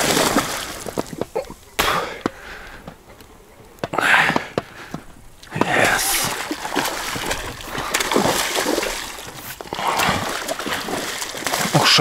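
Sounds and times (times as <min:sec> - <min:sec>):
fish splashing at water surface: 0:00.0 - 0:01.2, 0:05.6 - 0:12.0.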